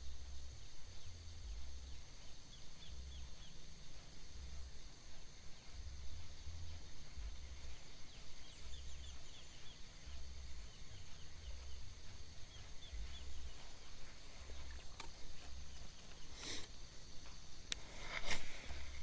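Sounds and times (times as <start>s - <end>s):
quick chirping calls: 0.6s - 19.0s
brief rustle: 17.7s - 19.0s.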